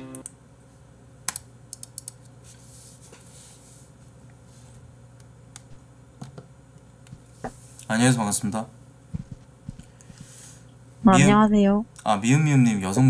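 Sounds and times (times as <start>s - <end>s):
computer keyboard and mouse clicks: 1.3s - 2.3s
low steady hum: 3.4s - 13.0s.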